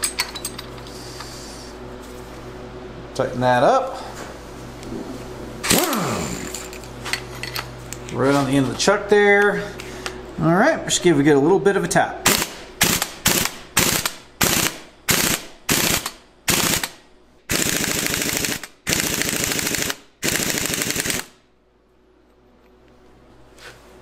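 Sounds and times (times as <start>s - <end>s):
air impact wrench hammering: 5.6s - 6.8s, 12.3s - 21.3s.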